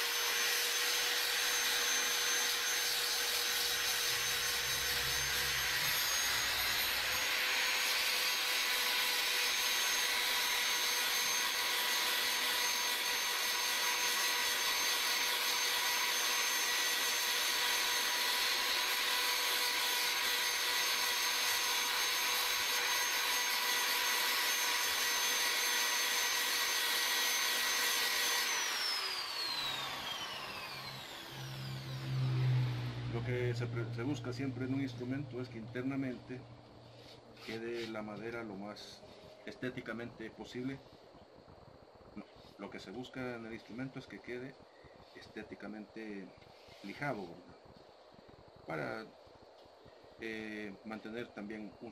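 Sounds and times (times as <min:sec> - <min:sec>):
electric drill motor whine: 0:00.0 - 0:35.4
sandpaper rasping on wood: 0:37.0 - 0:38.0.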